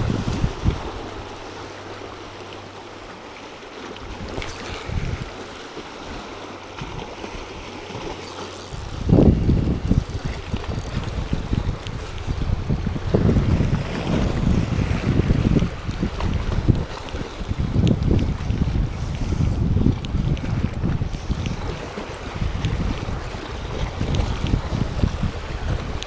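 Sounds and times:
wind buffeting microphone: 0.0 - 1.6, 4.0 - 26.0
waves splashing against rocks: 0.0 - 26.0.

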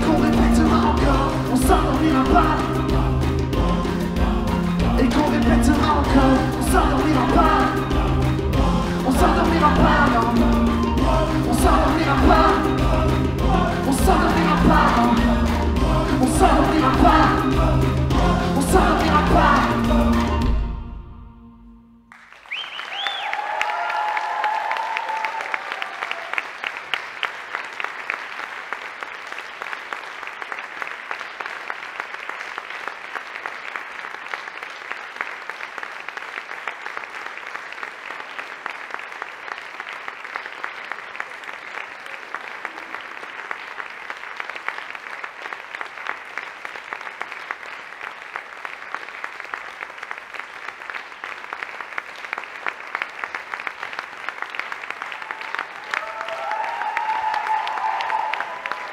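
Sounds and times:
audience applauding: 0.0 - 20.6, 22.1 - 58.9.

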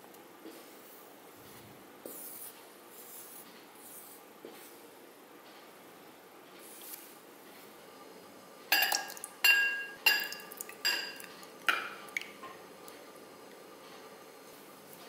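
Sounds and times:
metal ladle clinking on glass: 8.7 - 12.0.

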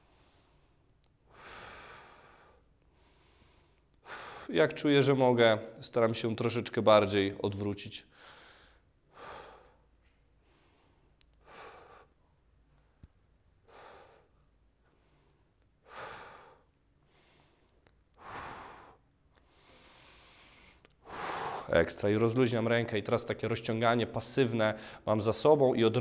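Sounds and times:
man breathing deeply: 0.0 - 4.6, 8.1 - 13.0, 13.6 - 21.8, 24.8 - 25.1.

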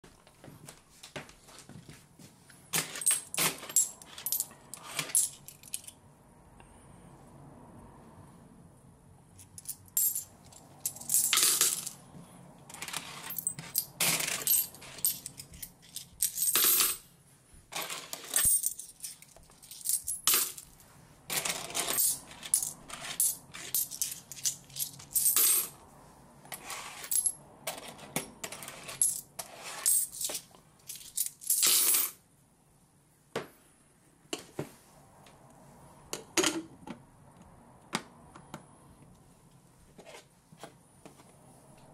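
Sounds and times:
coins clinking into tumbler: 2.7 - 6.0, 9.4 - 12.0, 12.7 - 17.0, 17.7 - 20.7, 21.3 - 25.8, 26.6 - 32.2.

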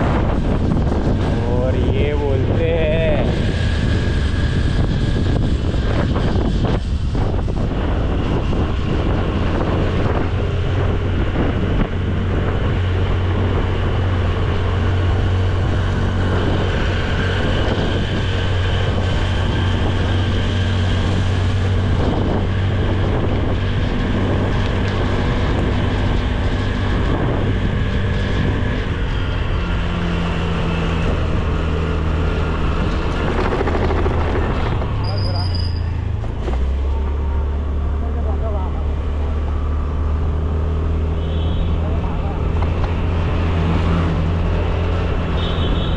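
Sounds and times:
wind buffeting microphone: 0.0 - 37.5
scooter engine running: 32.6 - 35.2.

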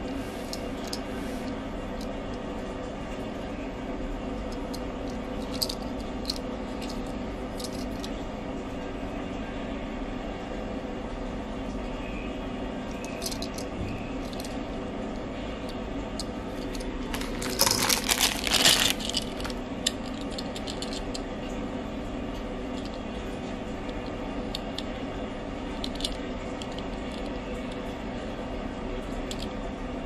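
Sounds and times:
steady low hum: 0.0 - 30.0
toy cars clicking and tapping: 5.4 - 8.1, 13.0 - 13.6, 16.2 - 21.2, 29.3 - 29.5
metallic clattering and rattling: 16.6 - 21.1.

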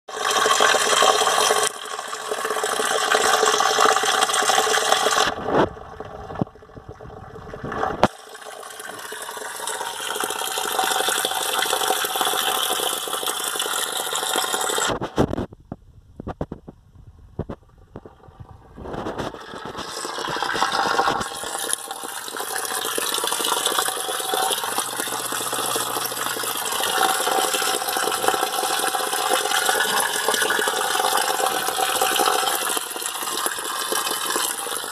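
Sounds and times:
water running and splashing: 19.0 - 34.9.

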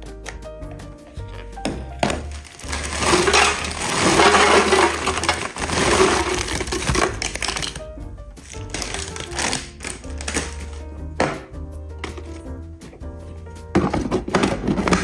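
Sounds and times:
background music: 0.0 - 15.0
dry food pouring into plastic container: 2.5 - 7.8.

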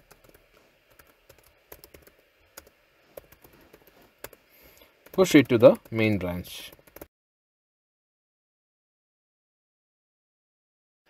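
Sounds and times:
computer keyboard typing: 0.0 - 7.1.

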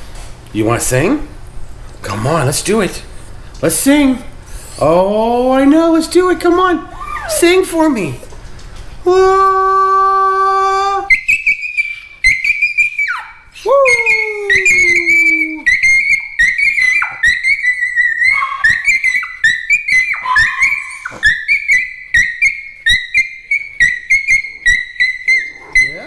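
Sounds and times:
small dog whine-howling: 6.9 - 7.5, 9.2 - 26.0
man howling: 6.9 - 7.6, 9.1 - 11.2, 13.6 - 15.8, 16.7 - 19.3, 19.9 - 21.3.

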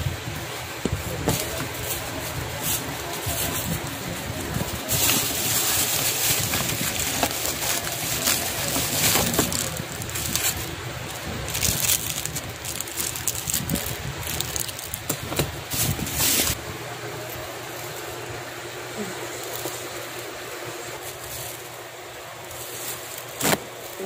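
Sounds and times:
plastic wrapping crinkling: 0.9 - 16.6, 20.9 - 24.0.

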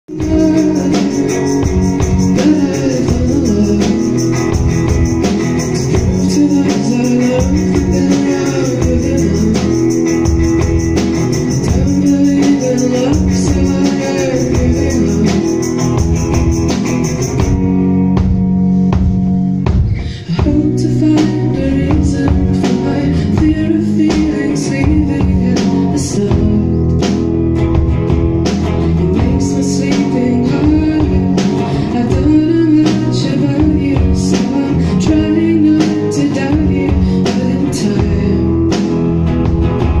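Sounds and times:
electric guitars: 0.0 - 40.0
woman singing: 0.1 - 4.4, 5.9 - 10.0, 11.6 - 15.7, 20.3 - 26.8, 29.1 - 38.6
drum kit with cymbal hits: 0.1 - 40.0.

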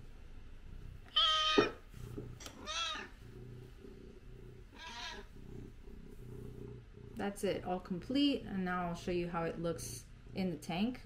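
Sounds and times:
cat meowing: 1.1 - 1.8, 2.6 - 3.1, 4.7 - 5.3.

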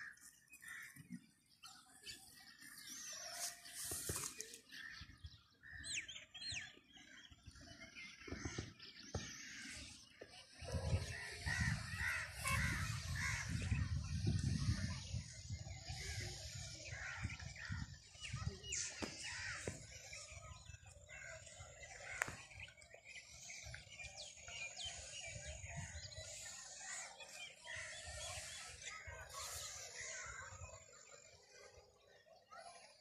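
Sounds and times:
small birds chirping: 0.0 - 33.0
wind rumble on microphone: 10.6 - 19.8.

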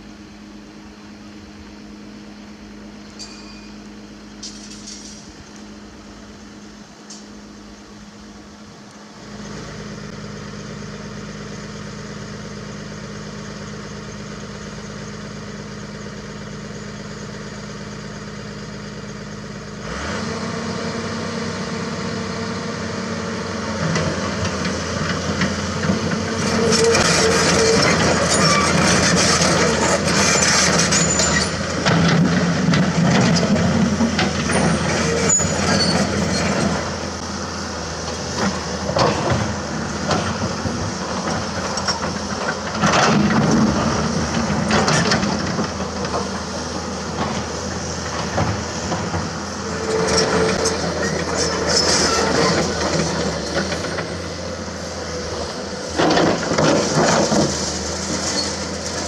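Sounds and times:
excavator diesel engine: 0.0 - 59.0
hydraulic working noise: 23.6 - 59.0.

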